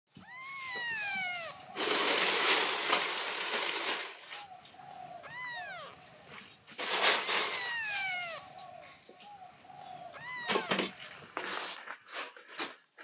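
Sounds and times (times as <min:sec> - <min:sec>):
kitten meowing: 0:00.1 - 0:01.8, 0:05.2 - 0:06.0, 0:07.1 - 0:08.6, 0:10.1 - 0:11.0
rough scraping noise: 0:01.7 - 0:04.5.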